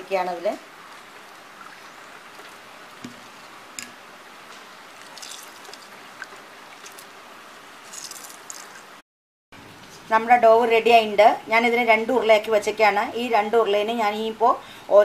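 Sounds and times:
background hiss: 0.0s - 9.0s.

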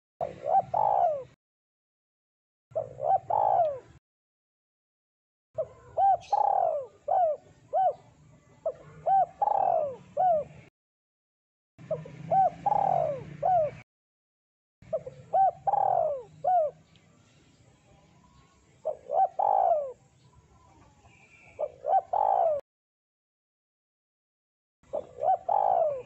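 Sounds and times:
dove cooing: 0.2s - 1.4s, 2.7s - 4.0s, 5.6s - 10.7s, 11.8s - 13.8s, 14.8s - 16.9s, 18.8s - 22.6s, 24.9s - 26.0s.

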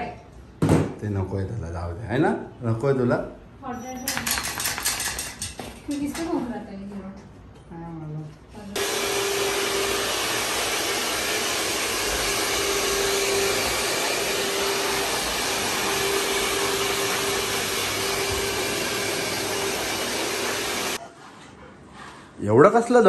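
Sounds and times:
hair dryer blowing: 8.8s - 21.0s.

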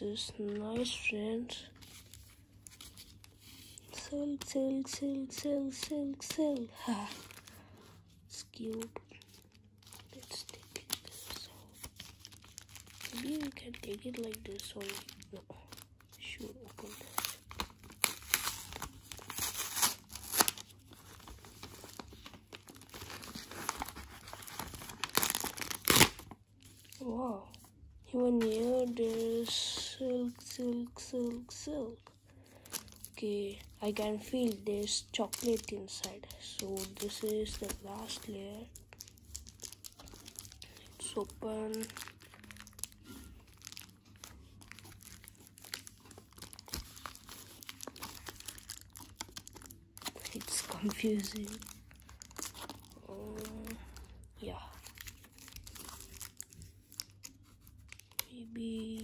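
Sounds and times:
wrapper crinkling and tearing: 1.5s - 59.0s.

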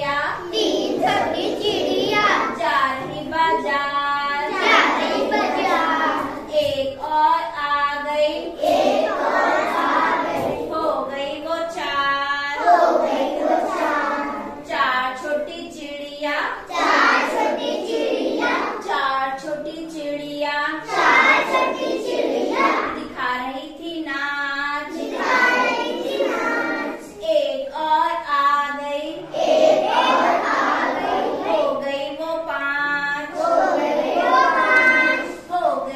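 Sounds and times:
children singing in unison: 0.3s - 3.7s, 4.3s - 6.8s, 8.4s - 10.8s, 12.5s - 14.6s, 16.6s - 18.9s, 20.8s - 23.2s, 24.8s - 27.2s, 29.1s - 31.9s, 32.9s - 35.5s.

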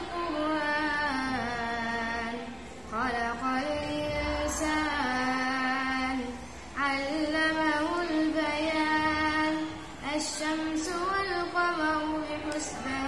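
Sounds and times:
boy reciting melodically: 0.0s - 13.0s.

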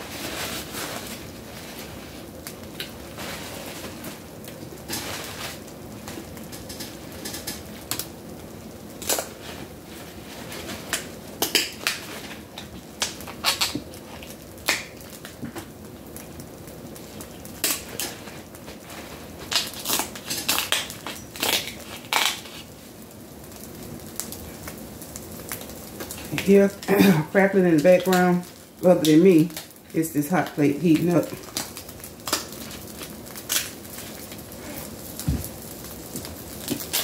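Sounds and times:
faint steady background noise: 0.0s - 37.0s
shears cracking crab shells: 6.3s - 8.1s, 9.0s - 9.4s, 10.9s - 15.7s, 17.3s - 18.4s, 19.4s - 22.7s, 31.3s - 35.3s, 36.1s - 37.0s.

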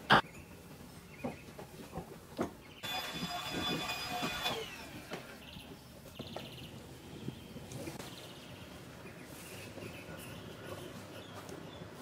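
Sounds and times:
vacuum motor winding down: 2.8s - 5.6s.

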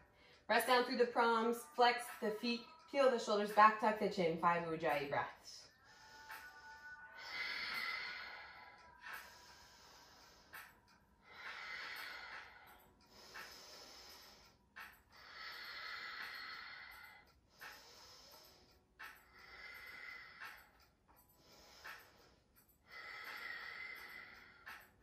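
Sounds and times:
woman breathing slowly: 0.0s - 0.5s, 5.6s - 25.0s.

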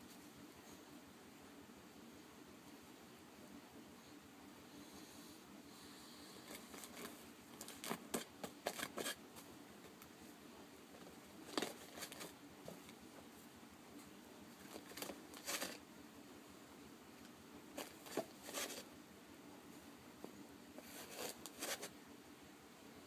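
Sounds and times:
cardboard tissue box handled: 6.5s - 9.2s, 11.0s - 12.4s, 14.6s - 15.8s, 17.8s - 18.9s, 20.8s - 21.9s
tissue paper rustling and tearing: 14.7s - 15.8s, 17.8s - 18.9s.

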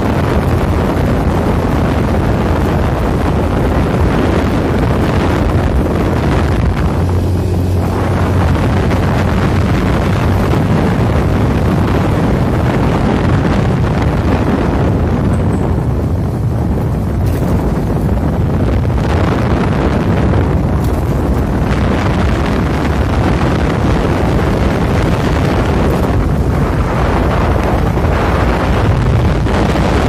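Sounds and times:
engine and tyre drone: 0.0s - 30.0s
wind rushing over microphone: 0.0s - 30.0s.

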